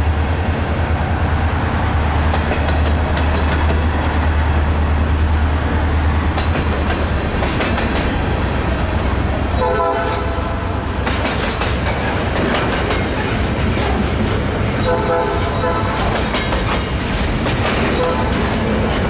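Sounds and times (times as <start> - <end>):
freight train rumbling past: 0.0 - 19.0
wheels clattering over rail joints: 2.2 - 4.2, 6.3 - 8.3, 11.0 - 19.0
train horn: 9.5 - 10.9, 14.8 - 16.2, 17.9 - 18.6.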